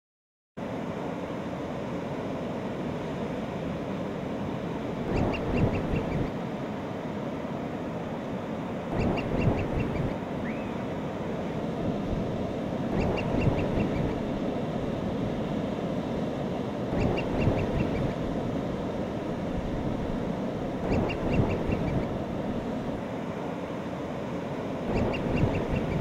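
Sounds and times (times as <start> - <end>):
ocean surf breaking: 0.7 - 26.0
seabird calling: 5.0 - 6.4, 8.9 - 11.0, 12.2 - 15.2, 16.7 - 18.8, 20.7 - 23.0, 24.9 - 26.0.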